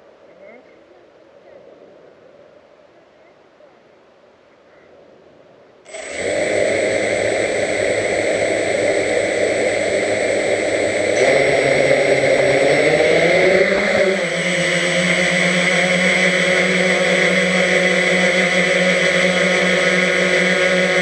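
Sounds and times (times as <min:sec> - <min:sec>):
quadcopter motors whining: 0:05.9 - 0:21.0.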